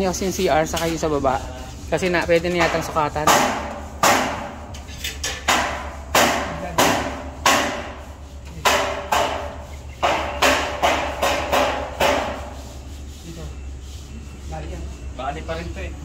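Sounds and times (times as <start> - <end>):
hammer striking: 2.1 - 12.7.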